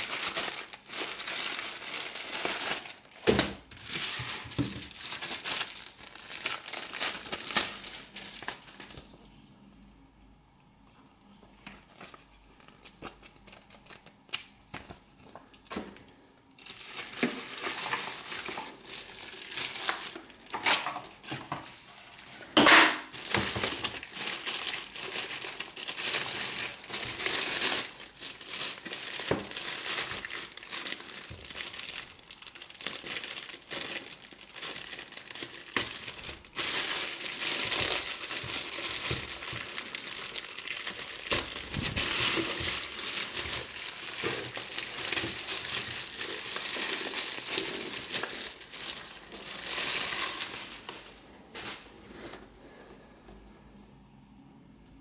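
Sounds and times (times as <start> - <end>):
plastic bag crinkling: 0.0 - 9.2, 11.6 - 52.3.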